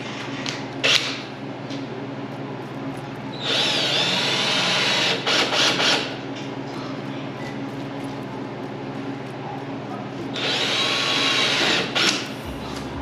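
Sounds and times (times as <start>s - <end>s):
power drill whining: 3.4s - 6.1s, 10.3s - 12.2s.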